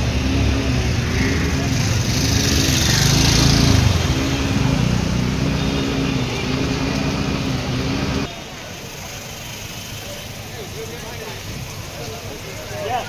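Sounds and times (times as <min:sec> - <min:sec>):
scooter engine running: 0:00.0 - 0:08.3
spraying water rush: 0:00.0 - 0:13.0.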